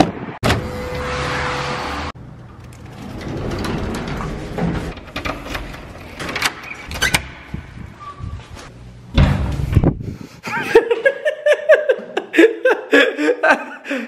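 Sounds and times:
door pushed open thud: 0:09.1 - 0:09.9.

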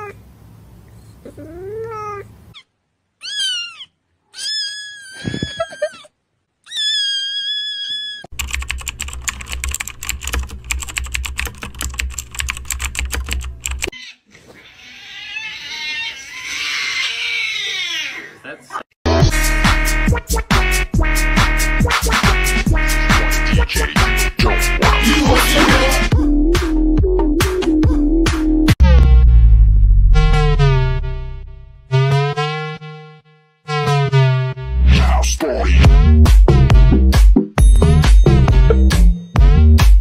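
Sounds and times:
cat meowing: 0:01.3 - 0:06.0, 0:06.6 - 0:08.3, 0:14.0 - 0:18.4
rapid keyboard typing: 0:08.3 - 0:13.9
loud cat wail: 0:14.0 - 0:18.4.

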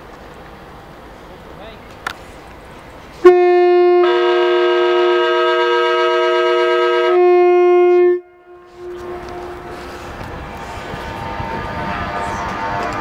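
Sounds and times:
train horn blast: 0:03.2 - 0:10.3, 0:11.1 - 0:13.0.

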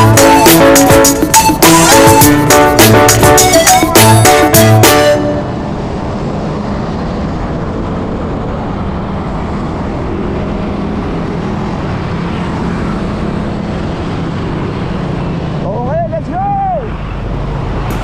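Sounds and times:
music track: 0:00.0 - 0:06.2
engine drone: 0:00.0 - 0:18.0
wind and road noise: 0:00.0 - 0:18.0.

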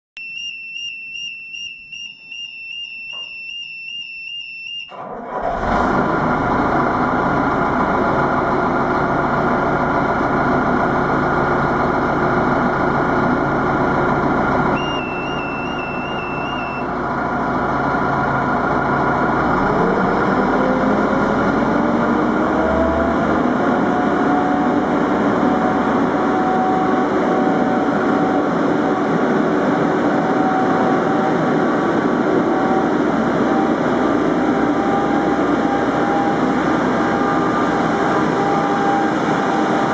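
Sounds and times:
warbling warning signal: 0:00.2 - 0:04.9, 0:14.8 - 0:16.9, 0:32.4 - 0:39.9
diesel engine running: 0:05.0 - 0:39.9
rising engine note: 0:12.4 - 0:39.9.

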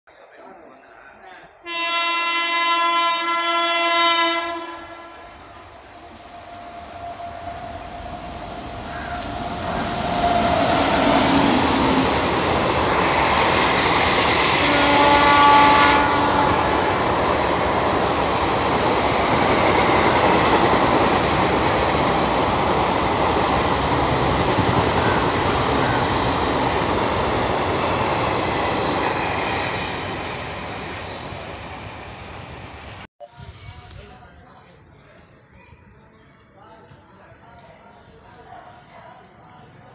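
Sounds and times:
multi-tone train horn: 0:01.6 - 0:08.7, 0:14.1 - 0:17.3
passenger train passing at speed: 0:01.6 - 0:34.5.

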